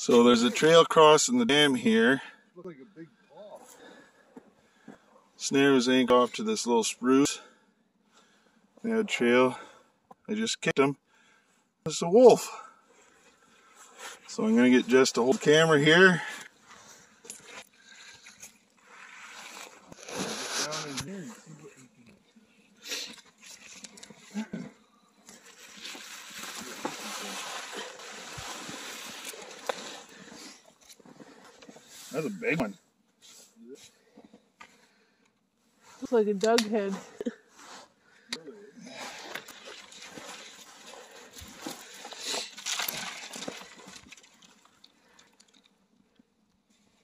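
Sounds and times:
branches brushing and rustling: 0:16.6 - 0:21.5, 0:25.3 - 0:32.3, 0:39.1 - 0:45.3
footsteps crunching in snow: 0:19.0 - 0:21.0, 0:25.4 - 0:30.4.

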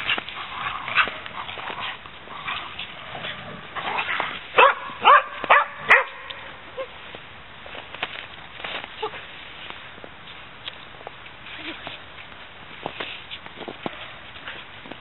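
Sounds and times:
dog barking: 0:04.6 - 0:06.3.

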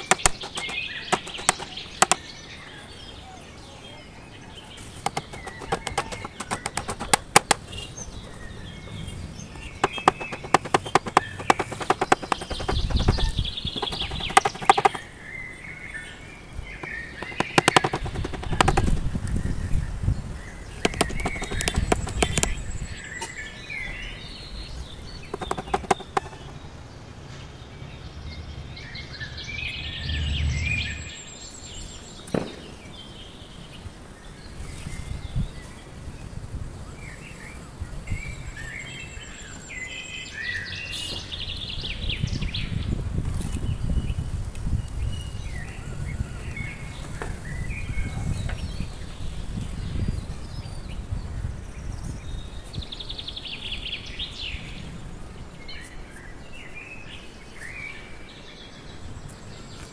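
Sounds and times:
hammer striking nails into wood: 0:00.0 - 0:02.2, 0:05.1 - 0:07.6, 0:09.8 - 0:15.0, 0:16.8 - 0:19.0, 0:20.8 - 0:22.6, 0:25.3 - 0:26.5
small birds chirping: 0:00.0 - 0:36.1.

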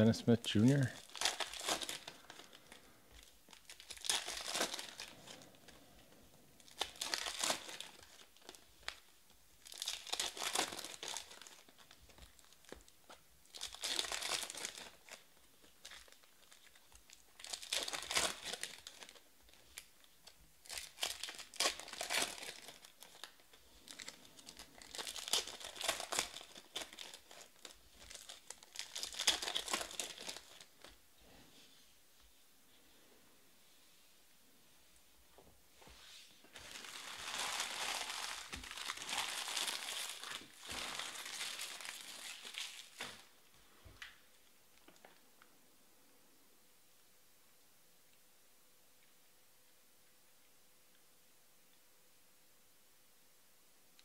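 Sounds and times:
foil packs crinkling and tearing: 0:00.6 - 0:05.6, 0:06.6 - 0:30.9, 0:36.5 - 0:43.4.

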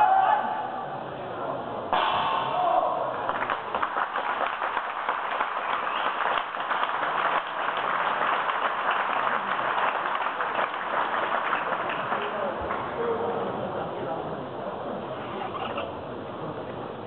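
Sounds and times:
crowd applauding: 0:03.1 - 0:12.9.

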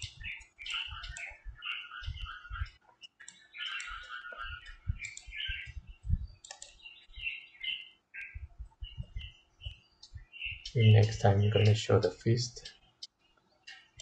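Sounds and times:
computer mouse clicking: 0:02.1 - 0:05.8, 0:06.4 - 0:06.9, 0:12.6 - 0:14.0
low thumps: 0:04.8 - 0:06.4.

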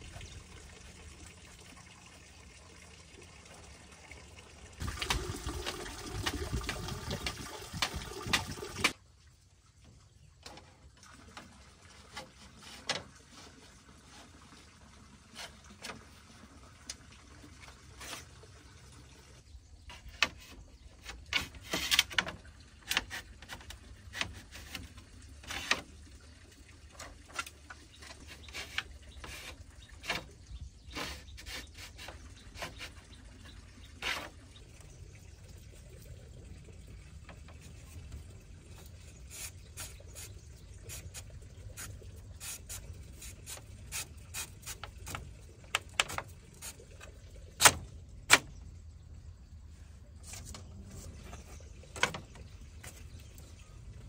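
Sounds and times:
bamboo slats rustling and clicking: 0:12.1 - 0:13.4, 0:19.8 - 0:25.9, 0:26.9 - 0:33.1, 0:34.0 - 0:34.4, 0:40.9 - 0:48.6, 0:50.2 - 0:53.1.

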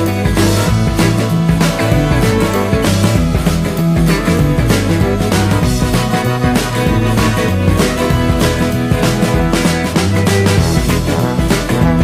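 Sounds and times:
upbeat guitar music: 0:00.0 - 0:12.0.

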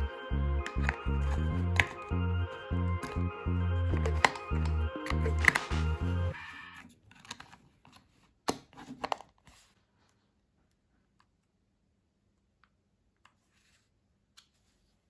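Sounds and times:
remote button clicks: 0:03.9 - 0:06.2.

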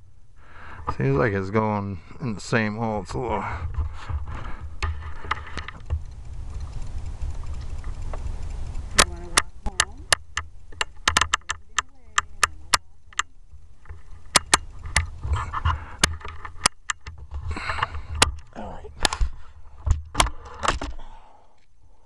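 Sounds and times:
low rumble: 0:00.0 - 0:16.6
sharp clicks and knocks: 0:03.6 - 0:21.7.

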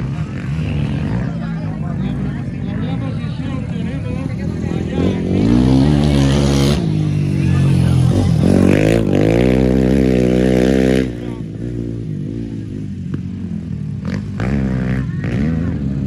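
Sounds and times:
dirt bike engines revving: 0:00.0 - 0:16.0
distant engine: 0:00.0 - 0:16.0.

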